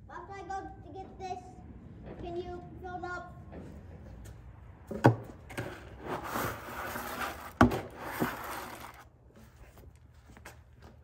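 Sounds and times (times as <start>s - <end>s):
rustling and scraping: 5.4s - 11.0s.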